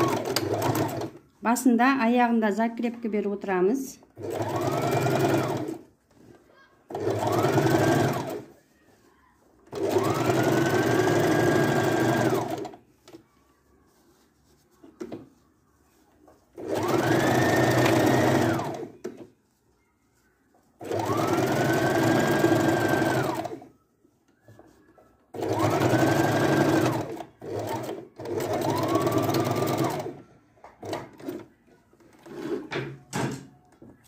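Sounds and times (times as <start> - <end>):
sewing machine motor whine: 6.9 - 8.5, 9.7 - 12.8, 16.6 - 18.9, 20.8 - 23.7, 25.3 - 30.2.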